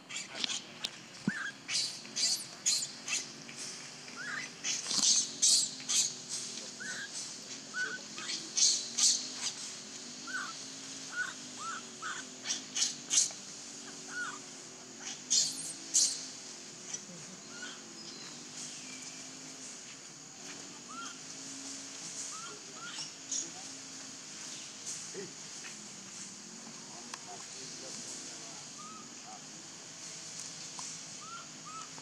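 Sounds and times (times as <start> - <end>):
baby monkey screaming: 1.3 - 3.3, 4.2 - 7.1, 7.7 - 9.6, 10.2 - 13.3, 13.9 - 16.3, 17.5 - 17.9, 20.9 - 21.2, 22.3 - 23.4, 28.8 - 29.1, 31.2 - 32.0.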